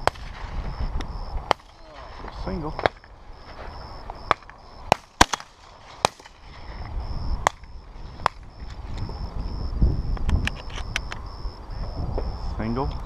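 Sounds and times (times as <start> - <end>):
shotgun shots: 0.0 - 0.4, 1.4 - 1.8, 4.2 - 6.4
wind rumble on microphone: 0.0 - 4.9, 5.6 - 13.0.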